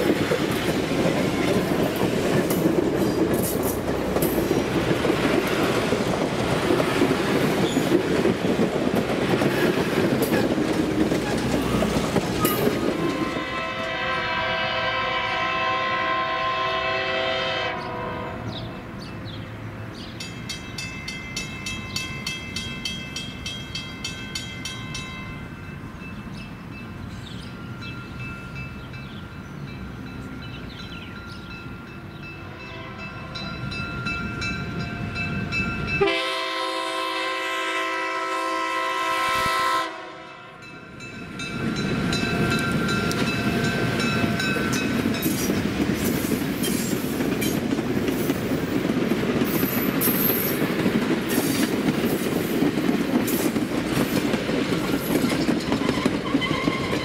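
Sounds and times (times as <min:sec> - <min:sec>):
train wheels clattering over rail joints: 0:00.0 - 0:13.5, 0:42.2 - 0:57.0
locomotive air horn chords: 0:13.0 - 0:18.6, 0:36.0 - 0:40.6.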